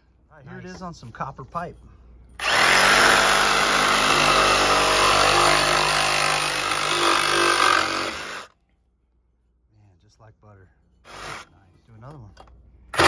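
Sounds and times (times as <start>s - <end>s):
reciprocating saw cutting pipe: 2.4s - 8.5s.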